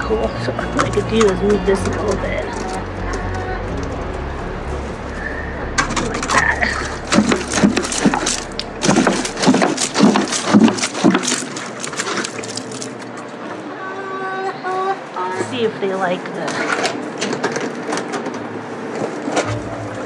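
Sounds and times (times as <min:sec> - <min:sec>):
water glugging from plastic jug: 0:05.8 - 0:13.2
water splashing onto dirt: 0:06.2 - 0:13.2.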